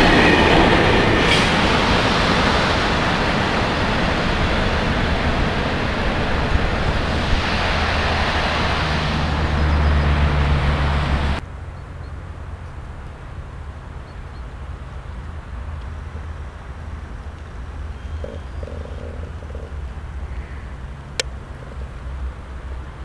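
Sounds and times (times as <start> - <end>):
freight train rumbling on rails: 0.0 - 14.0.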